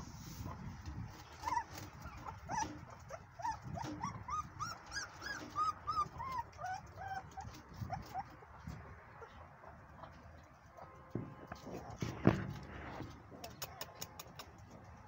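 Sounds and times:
puppies whimpering: 1.2 - 10.2.

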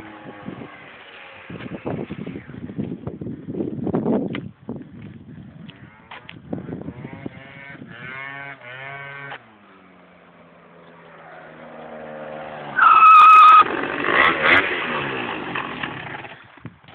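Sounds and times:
scooter engine revving: 6.5 - 16.6
high-pitched squeal: 12.8 - 13.7.

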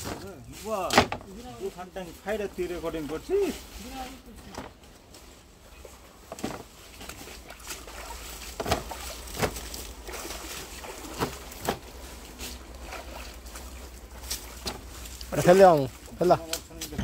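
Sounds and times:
water sloshing in metal drum: 5.7 - 16.2.

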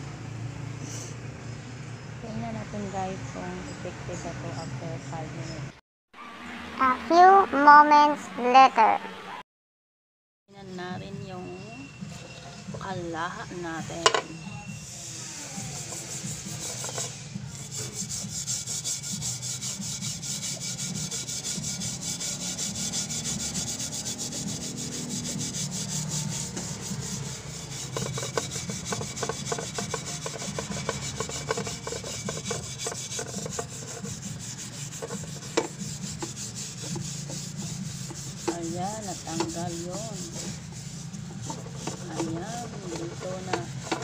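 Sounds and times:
steel wool scrubbing a pan: 12.1 - 44.0.

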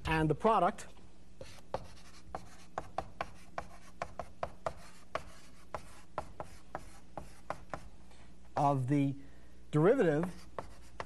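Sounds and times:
chalk tapping and scraping on blackboard: 1.4 - 7.9, 10.1 - 11.0.

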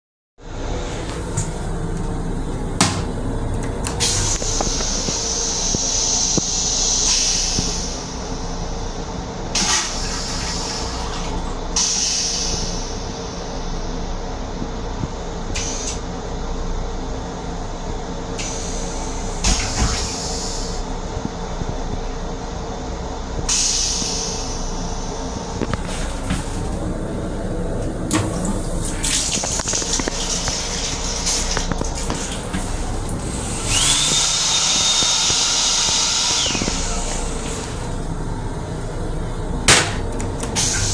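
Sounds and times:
rumble of railcar: 0.4 - 40.9
toilet flushing: 1.0 - 8.9, 9.5 - 13.4, 23.5 - 38.1, 39.8 - 40.9
hand dryer blower: 33.3 - 37.8.

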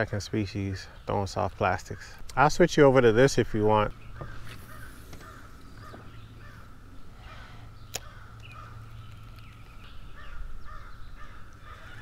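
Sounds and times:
birds calling: 0.0 - 12.0
steady low hum: 0.0 - 12.0.

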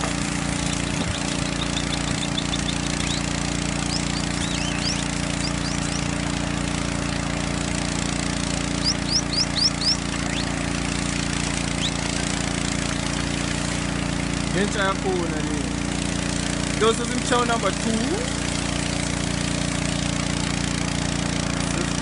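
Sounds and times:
hissing water spray: 0.0 - 22.0
small pump engine running: 0.0 - 22.0
short high rising chirps: 0.6 - 6.2, 8.6 - 10.6.

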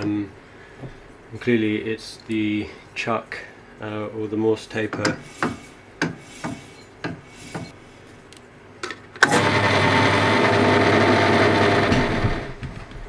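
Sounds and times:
pillar drill motor running: 9.2 - 12.6.

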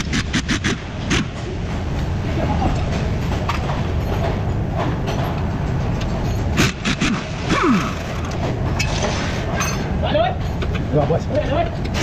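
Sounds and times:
wrenches clinking: 2.7 - 12.0.

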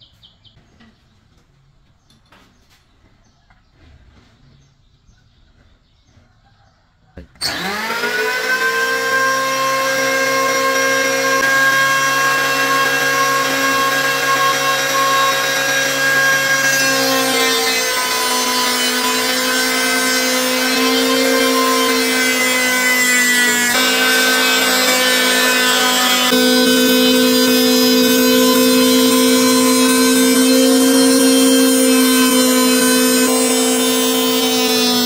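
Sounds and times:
electric planer motor whine: 7.4 - 35.0
planer cutting wood hiss: 7.4 - 35.0.

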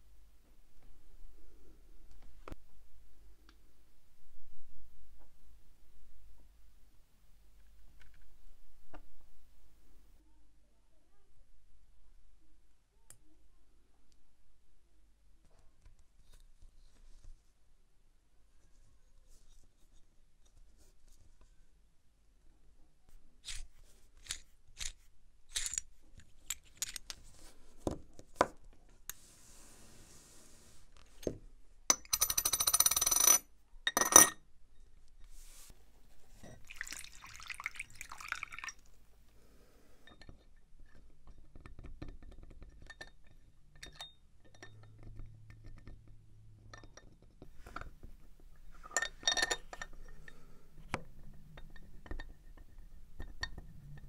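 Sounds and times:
metal parts and tools clinking: 23.4 - 27.3, 31.9 - 34.4.

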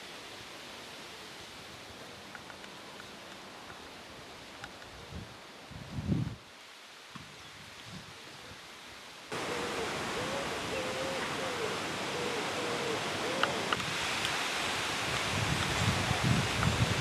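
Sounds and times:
wind blowing: 1.4 - 6.5, 9.3 - 17.0.

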